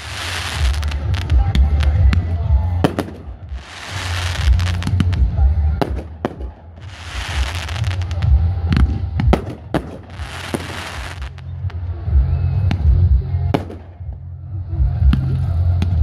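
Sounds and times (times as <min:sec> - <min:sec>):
crackling firework fizz: 0:00.0 - 0:12.0
firework bangs: 0:00.0 - 0:12.0, 0:12.6 - 0:14.2
low rumble: 0:00.0 - 0:16.0.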